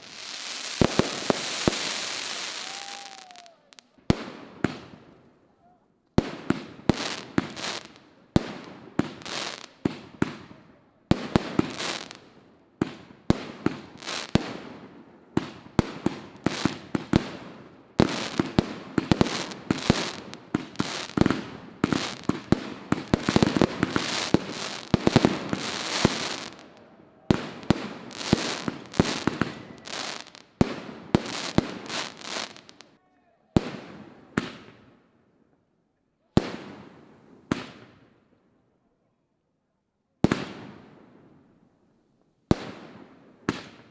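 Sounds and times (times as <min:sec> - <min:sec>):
fireworks bursting: 0:00.0 - 0:05.0, 0:06.2 - 0:10.5, 0:11.1 - 0:32.9.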